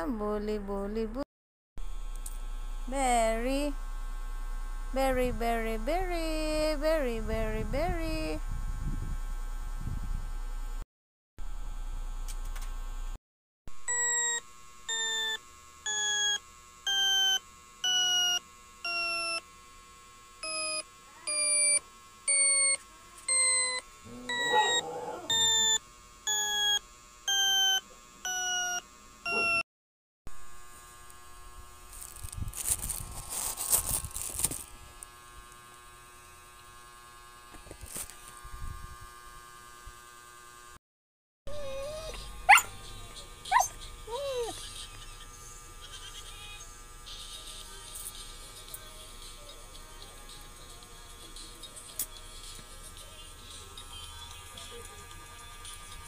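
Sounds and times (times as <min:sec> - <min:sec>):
dog whining: 0:24.1 - 0:25.6, 0:29.3 - 0:29.6, 0:41.5 - 0:45.1
rustling handling noise: 0:31.9 - 0:34.8.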